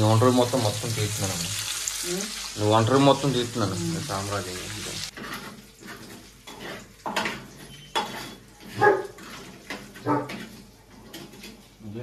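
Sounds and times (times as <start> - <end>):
metal spatula scraping frying pan: 4.9 - 11.8.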